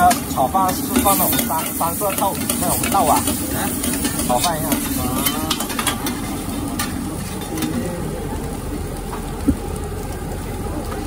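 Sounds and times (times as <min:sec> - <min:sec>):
metal spatula scraping griddle: 0:00.0 - 0:07.7
food sizzling on griddle: 0:00.0 - 0:11.0.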